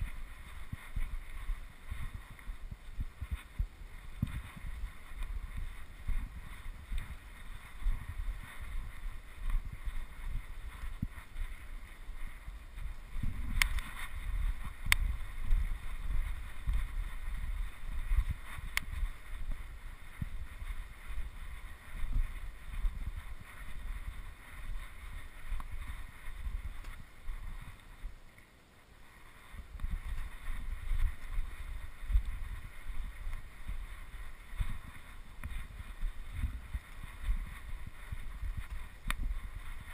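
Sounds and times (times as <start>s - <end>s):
wind buffeting microphone: 0.0s - 28.3s, 29.0s - 39.9s
faint sharp clicks: 13.5s - 14.1s, 14.8s - 15.7s, 18.7s - 19.0s, 26.8s - 27.0s, 38.6s - 39.3s.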